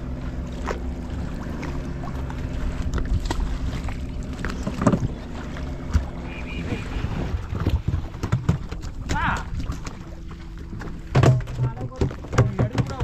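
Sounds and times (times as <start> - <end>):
boat engine running: 0.0 - 13.0
water splashing: 0.0 - 13.0
wind on microphone: 2.6 - 10.8
knocks and scrapes of fishing line: 2.7 - 6.3, 7.0 - 13.0.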